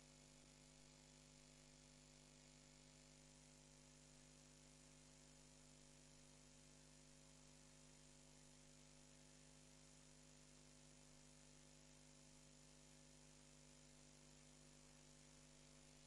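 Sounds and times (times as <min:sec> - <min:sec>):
faint electrical hum with hiss: 0:00.0 - 0:16.0.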